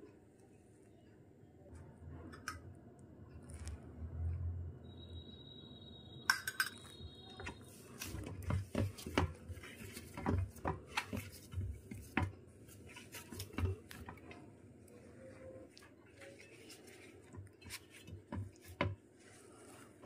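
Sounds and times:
metal bowl clinks and knocks: 6.3s - 7.6s
dough kneading thuds: 7.1s - 14.5s.

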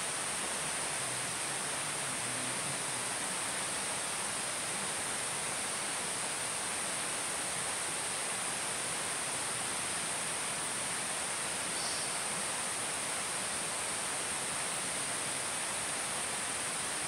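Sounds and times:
forest hiss: 0.0s - 17.0s
high-pitched insect drone: 11.7s - 12.5s
faint high chirp: 11.8s - 12.2s.

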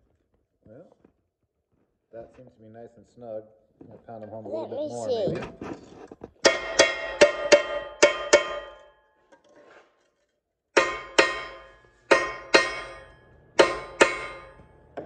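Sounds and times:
hammer blows on steel: 10.8s - 15.0s.

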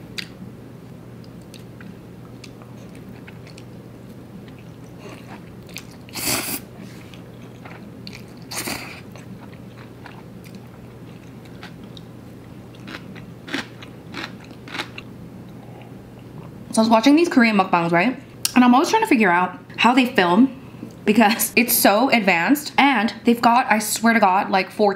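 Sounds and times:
soft chewing: 1.2s - 16.5s
person slurping noodles: 6.1s - 7.1s.

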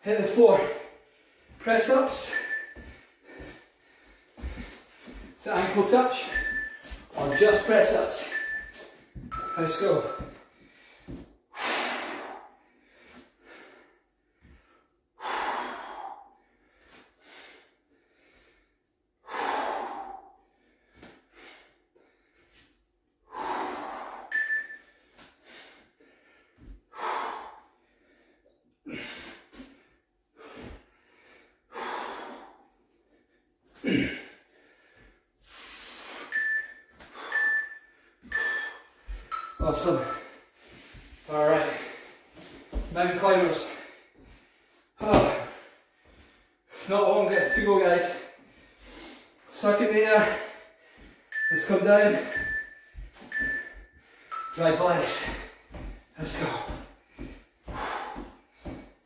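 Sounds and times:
man breathing hard: 0.7s - 1.6s, 2.2s - 47.0s, 47.9s - 51.3s, 51.9s - 59.0s
short high timer beeps: 6.2s - 10.3s, 36.3s - 40.2s, 51.3s - 54.6s.

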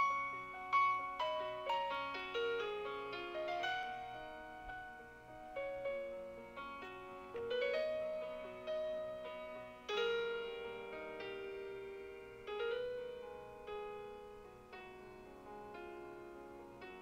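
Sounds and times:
soft piano chords: 0.0s - 17.0s.

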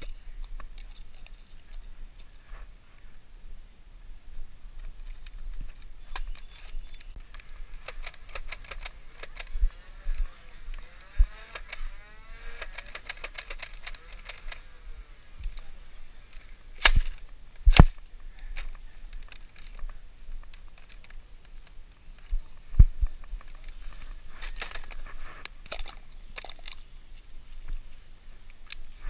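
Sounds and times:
toy blaster rapid clicks: 7.3s - 17.2s
toy blaster loud shots: 7.6s - 15.8s, 16.8s - 17.9s.

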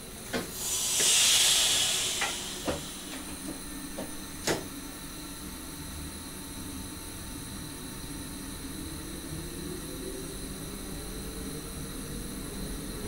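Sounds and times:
compressed air venting hiss: 0.4s - 4.6s.

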